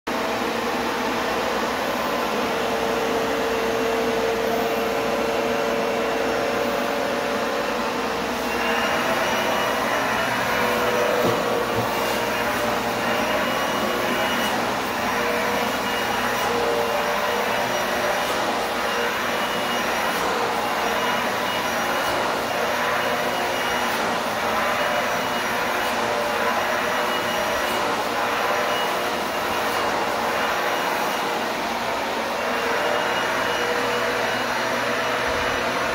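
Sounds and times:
vacuum cleaner running: 0.1 - 35.9.

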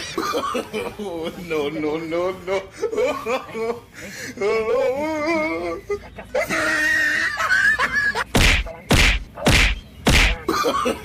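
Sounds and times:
kicks thudding on a body: 8.4 - 10.4.

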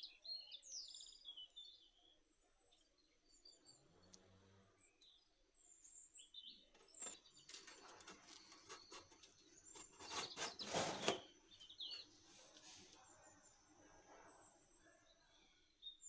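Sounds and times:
faint bird chirps: 0.0 - 16.0
metal lid scraping and clattering: 6.8 - 11.3.

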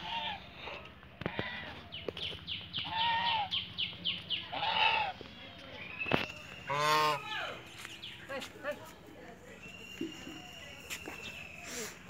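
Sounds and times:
geese honking: 0.0 - 1.8, 2.8 - 3.6, 4.4 - 5.2, 6.6 - 7.6.

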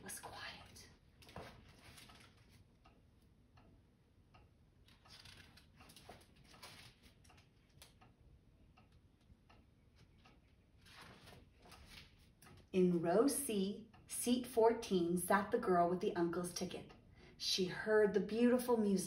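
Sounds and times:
book pages turning: 1.2 - 2.6, 4.9 - 7.5, 10.8 - 12.3.

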